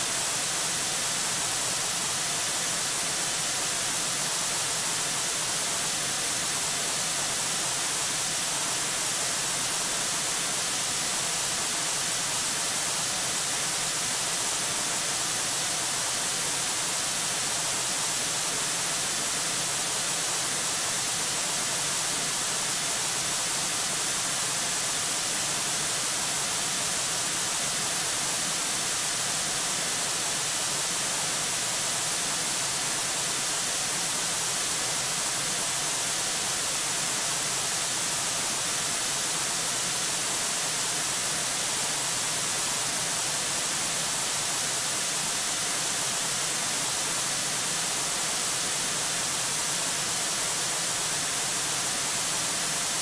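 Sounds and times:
microphone static hiss: 0.0s - 53.0s.

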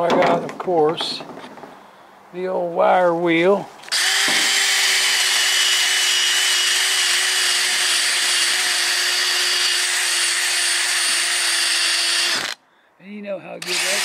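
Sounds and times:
drill motor whine: 3.9s - 12.6s, 13.6s - 14.0s.

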